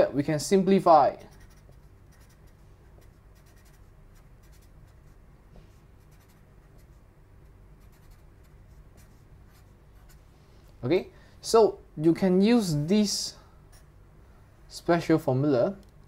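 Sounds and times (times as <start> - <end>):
marker writing on paper: 1.2 - 5.2, 6.0 - 7.0, 7.8 - 10.2.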